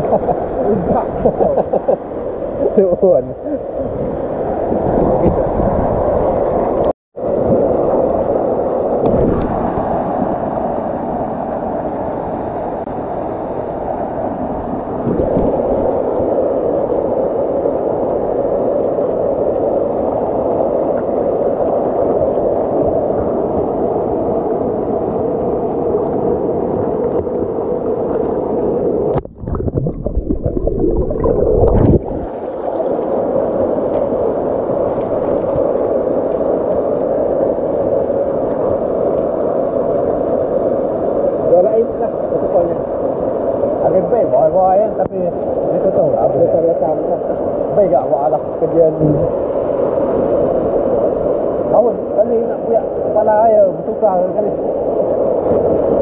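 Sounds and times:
low rumbling on microphone: 29.2s - 32.4s.

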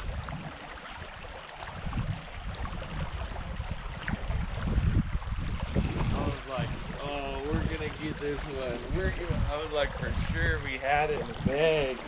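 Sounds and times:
creek rushing: 0.0s - 12.0s
wind buffeting microphone: 0.0s - 12.0s.

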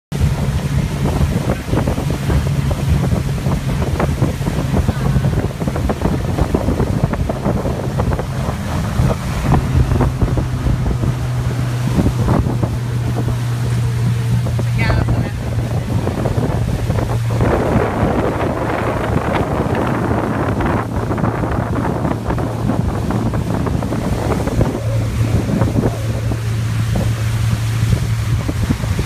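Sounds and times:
motorboat engine running: 0.1s - 29.0s
water splashing against hull: 0.1s - 29.0s
wind buffeting microphone: 0.1s - 29.0s.

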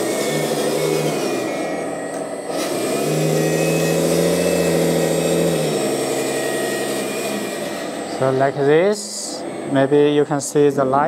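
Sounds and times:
toy truck drive hum: 0.0s - 8.2s
hydraulic pump whining: 0.0s - 11.0s.

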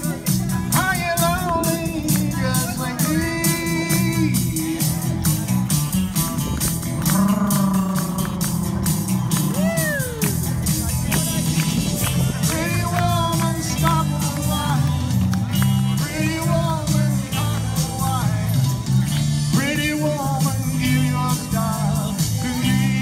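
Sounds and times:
bass line: 0.0s - 23.0s
drum beat: 0.0s - 23.0s
electric guitar: 0.0s - 23.0s
person singing: 11.1s - 15.2s, 15.8s - 18.8s.

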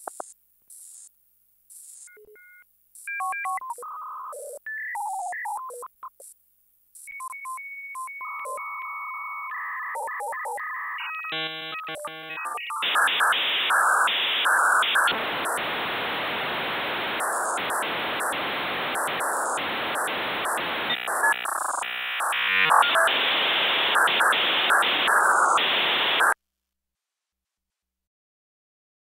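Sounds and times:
modem hissing static: 11.4s - 26.4s
modem warbling tones: 12.0s - 26.4s.

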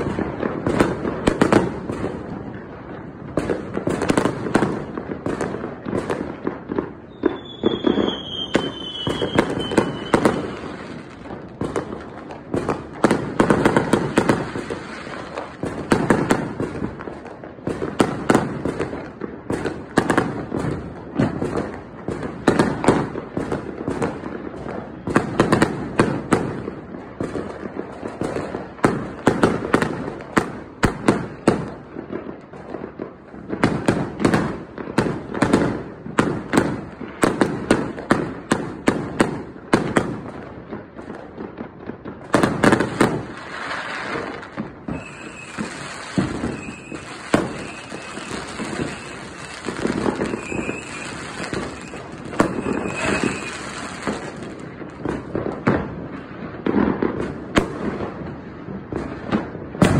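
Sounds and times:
fireworks bangs and crackles: 0.0s - 59.9s
firework whistle: 7.0s - 11.0s, 44.8s - 54.4s.

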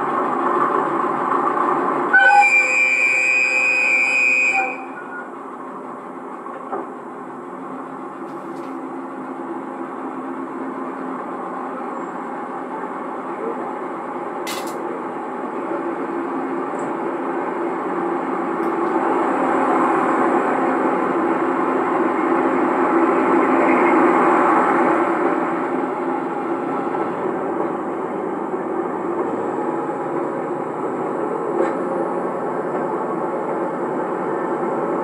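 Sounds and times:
train rumble: 0.0s - 35.0s
train horn blast: 2.1s - 5.3s.

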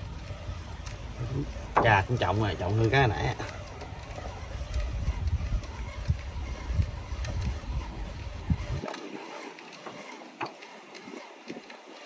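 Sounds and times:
low rumble on microphone: 0.0s - 8.9s.

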